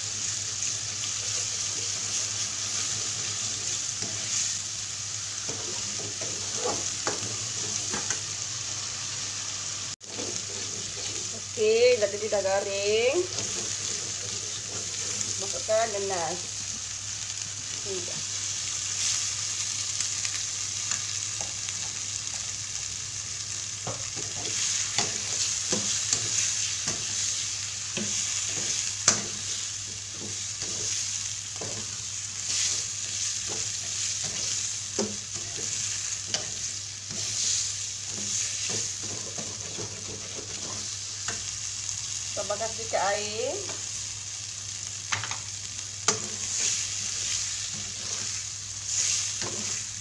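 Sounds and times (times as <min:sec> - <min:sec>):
paste sizzling in a wok: 0:00.0 - 0:50.0
metal spatula scraping a pan: 0:05.5 - 0:08.0, 0:10.0 - 0:11.3, 0:24.2 - 0:41.0, 0:46.1 - 0:49.9.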